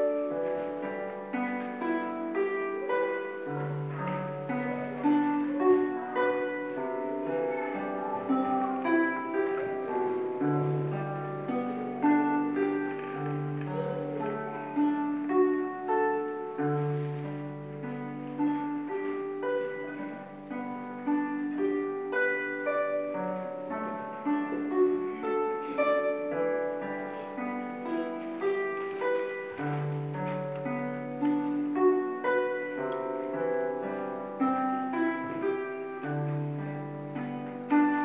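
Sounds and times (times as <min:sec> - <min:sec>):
harp playing: 0:00.0 - 0:38.0.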